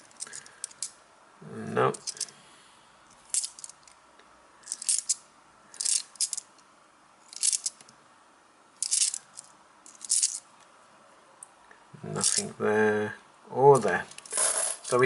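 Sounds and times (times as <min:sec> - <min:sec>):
coins clinking: 0:03.3 - 0:03.8, 0:04.7 - 0:05.2, 0:05.8 - 0:06.5, 0:08.8 - 0:10.4, 0:12.2 - 0:12.5, 0:13.8 - 0:15.0.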